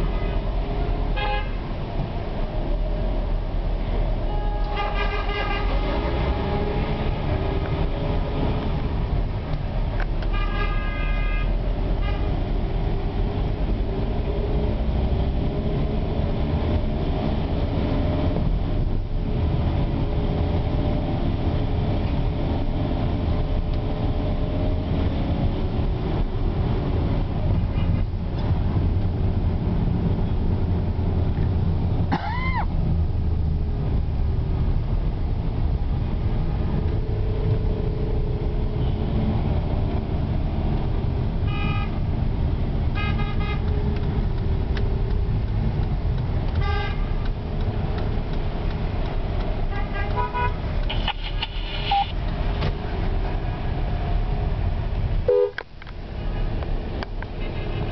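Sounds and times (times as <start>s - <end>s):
car engine and road rumble: 0.0s - 57.9s
car horn toots: 4.3s - 5.8s, 41.5s - 42.0s, 43.0s - 43.8s, 46.6s - 47.2s, 49.7s - 51.2s, 55.3s - 55.6s.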